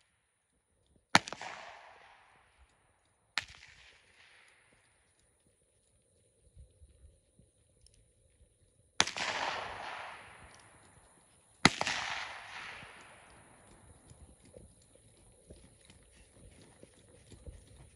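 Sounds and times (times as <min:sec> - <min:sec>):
handgun shots: 0:11.6 - 0:13.1.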